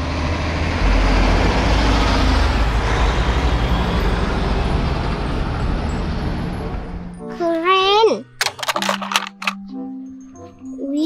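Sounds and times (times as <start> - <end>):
truck engine rumble: 0.0 - 7.2
road noise: 0.0 - 9.6.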